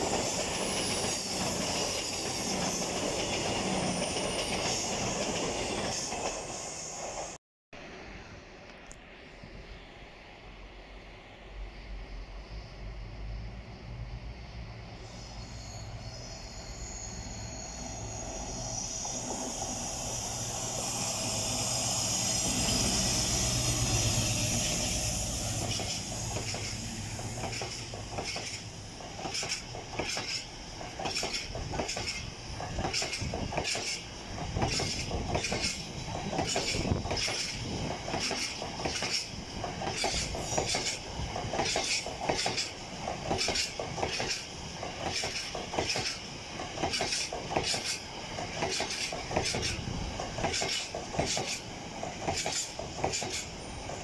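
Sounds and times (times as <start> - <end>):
train wheels clicking over rail joints: 24.0 - 54.0.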